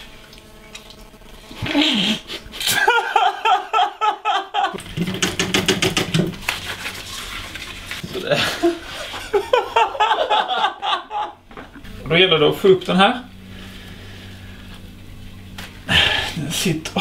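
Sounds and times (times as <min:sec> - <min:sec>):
man laughing: 0:01.6 - 0:04.8, 0:08.2 - 0:11.4.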